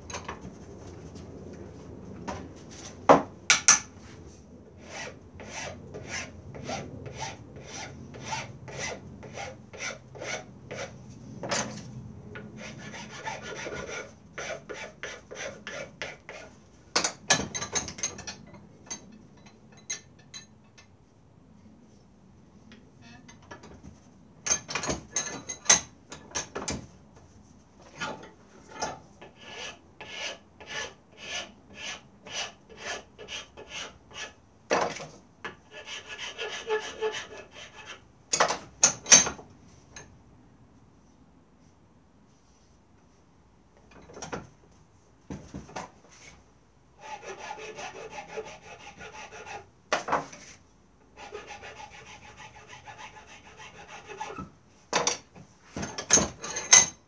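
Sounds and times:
hand file rasping on wood: 4.8 - 10.9, 12.6 - 16.5, 29.3 - 34.4, 35.7 - 38.0, 47.0 - 49.7, 51.2 - 54.4.

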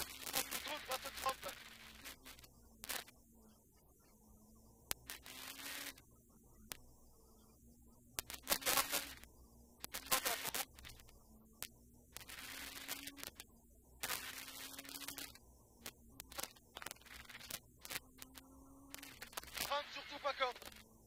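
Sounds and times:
bursts of hiss: 0.0 - 2.3
muffled rally car engine: 0.0 - 21.0
sharp clicks: 8.1 - 21.0.

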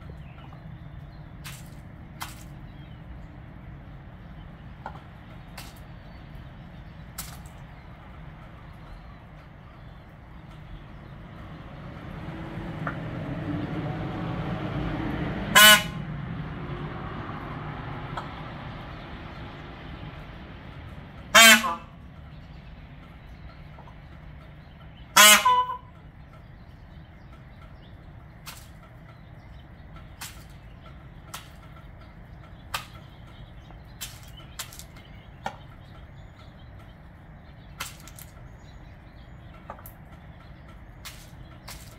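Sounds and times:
peacock calling: 15.5 - 16.2, 20.8 - 41.9.

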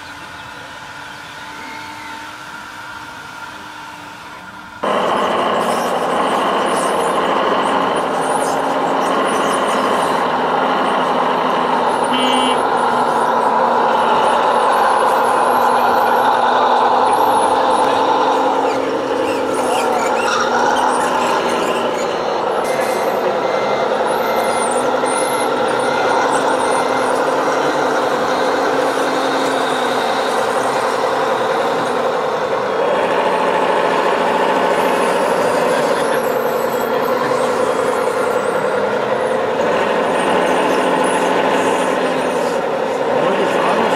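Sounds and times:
diesel truck engine sound: 0.0 - 43.9
reversing beeps: 19.6 - 28.0.

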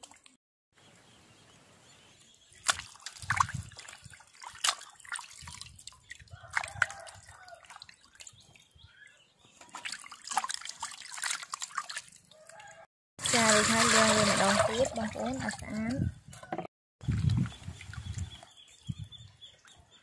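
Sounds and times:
water splashing and dripping: 0.0 - 0.4, 2.5 - 19.7.

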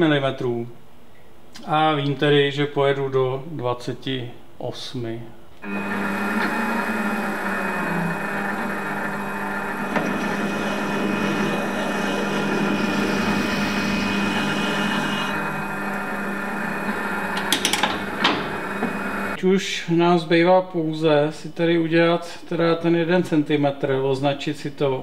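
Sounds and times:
drill cutting spinning workpiece: 5.6 - 19.4
metal lathe whining: 5.6 - 19.4.

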